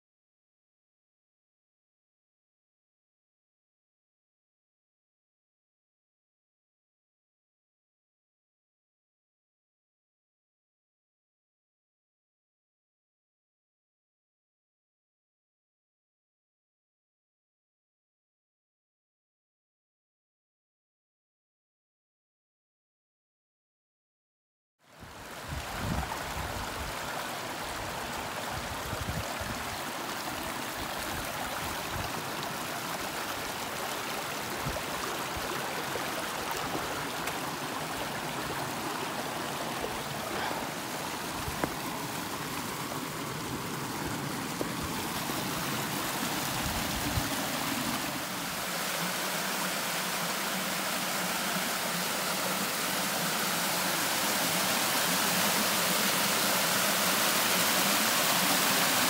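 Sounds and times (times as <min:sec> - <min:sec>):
small waterfall cascading: 0:24.9 - 0:59.0
stream rushing over rocks: 0:24.9 - 0:59.0.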